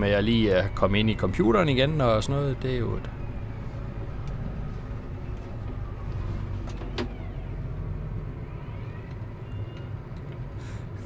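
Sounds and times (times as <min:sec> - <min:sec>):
tractor engine running: 0:00.0 - 0:08.4.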